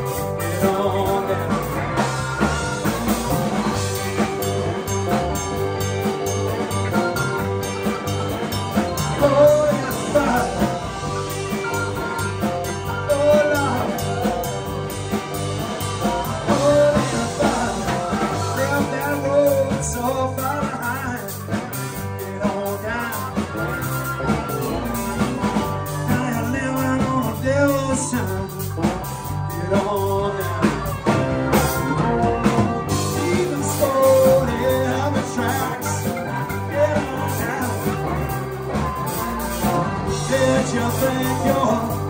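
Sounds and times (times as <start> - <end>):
man singing: 0.0 - 4.4, 6.9 - 42.0
blues rock band playing: 0.0 - 42.0.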